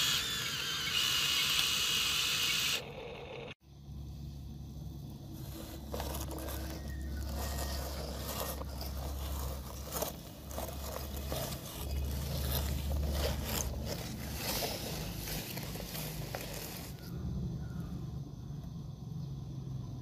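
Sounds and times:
low steady rumble: 2.8s - 20.0s
plastic toy scraping on sand: 5.4s - 17.0s.

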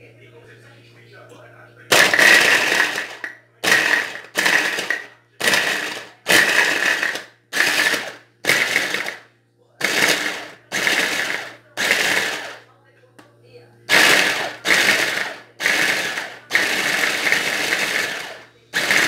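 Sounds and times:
hand blender chopping coconut: 1.9s - 9.2s, 9.8s - 12.6s, 13.9s - 19.0s.

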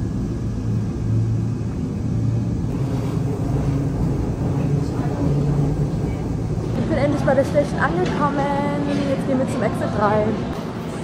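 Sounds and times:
subway train rumbling: 0.0s - 11.0s.

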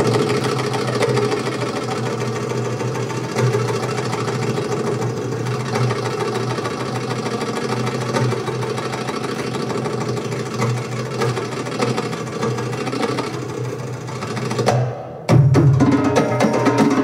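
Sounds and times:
fast darbuka drum roll: 14.1s - 17.0s.

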